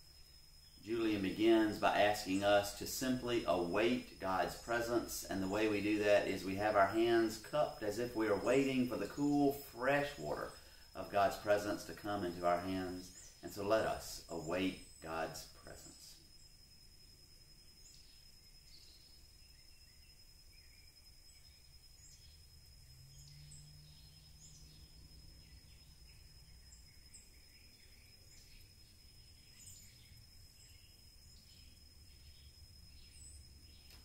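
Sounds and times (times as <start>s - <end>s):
high-pitched insect tone: 0.0s - 34.0s
bird chirps: 17.7s - 34.0s.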